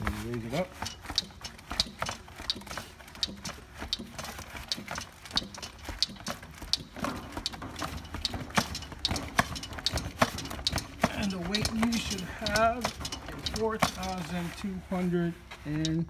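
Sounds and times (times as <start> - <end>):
pallet jack pump clicking: 0.0 - 16.0.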